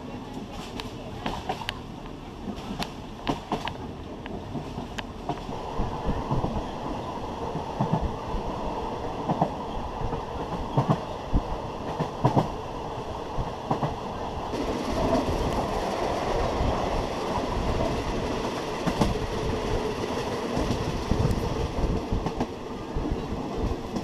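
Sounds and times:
train carriage rumble: 0.0s - 24.0s.

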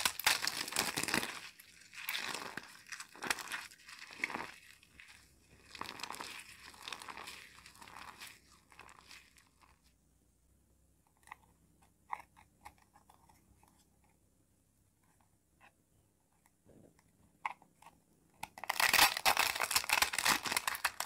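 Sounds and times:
soap crunching in hands: 0.0s - 9.7s, 18.4s - 21.0s.

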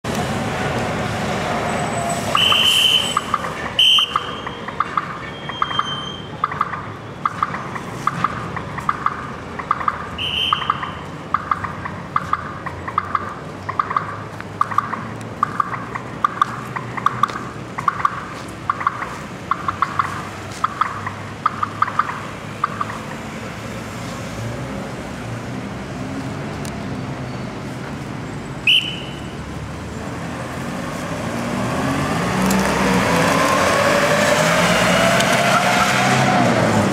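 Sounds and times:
street traffic hum: 0.0s - 36.9s
crossing signal beeping: 1.7s - 23.2s, 28.6s - 29.4s
shrill whistle blasts: 2.3s - 4.6s, 10.2s - 11.0s, 28.6s - 29.3s.

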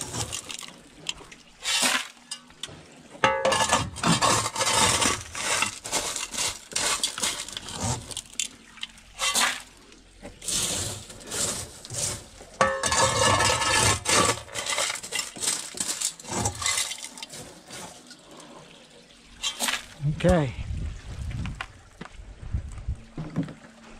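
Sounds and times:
gravel scraped off wire sieve: 0.0s - 2.4s, 3.5s - 18.6s, 19.4s - 20.0s
stones rattling against mesh: 0.0s - 2.6s, 3.5s - 9.7s, 10.3s - 18.1s.

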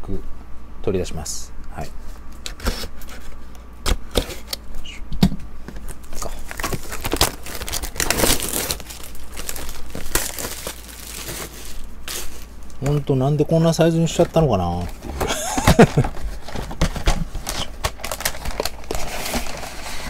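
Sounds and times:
foil packs crinkling: 5.8s - 20.0s
cardboard box tearing: 6.5s - 12.4s, 14.9s - 20.0s.

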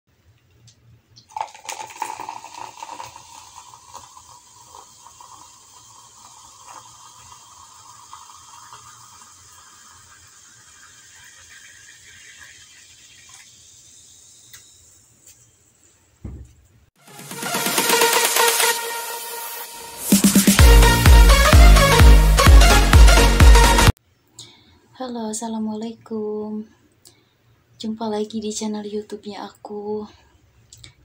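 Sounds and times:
cola pouring into glass: 1.2s - 14.1s
fizz of carbonation: 1.2s - 15.3s.

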